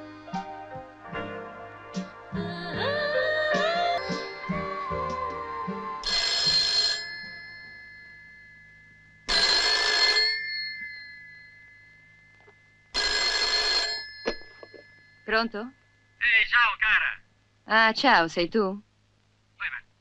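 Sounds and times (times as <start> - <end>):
telephone bell ringing: 6.0 - 15.5.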